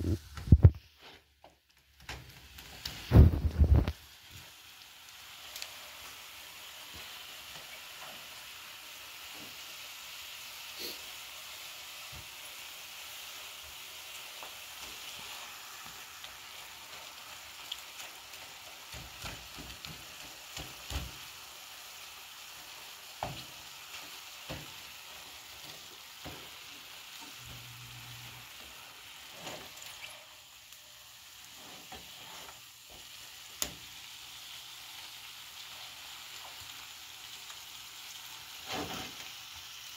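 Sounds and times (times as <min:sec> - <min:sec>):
meat sizzling in a frying pan: 0:00.0 - 0:39.9
spatula scraping a pan: 0:29.2 - 0:29.8, 0:31.5 - 0:32.7.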